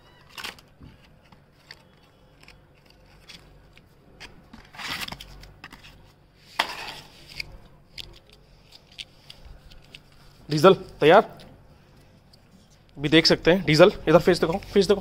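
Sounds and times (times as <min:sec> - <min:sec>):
blister pack clicks and crackles: 0:00.3 - 0:04.3.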